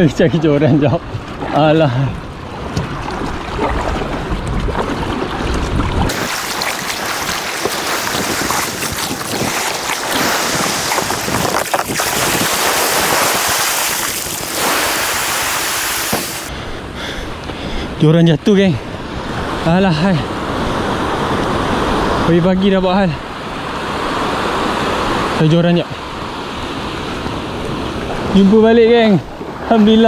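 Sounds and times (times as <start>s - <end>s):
wind rumbling on microphone: 0.0s - 25.4s
small waves washing ashore: 0.4s - 16.5s.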